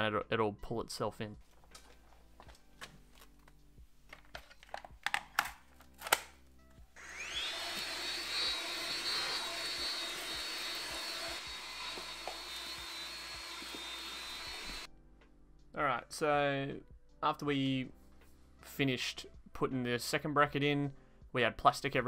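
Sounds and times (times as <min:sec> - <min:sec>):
handling clicks and knocks: 0:01.4 - 0:06.4
cordless vacuum motor whine: 0:07.0 - 0:14.9.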